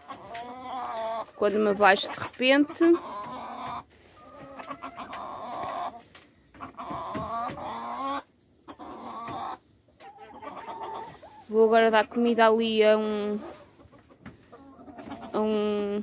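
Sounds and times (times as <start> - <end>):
hens clucking: 0.0 - 16.0.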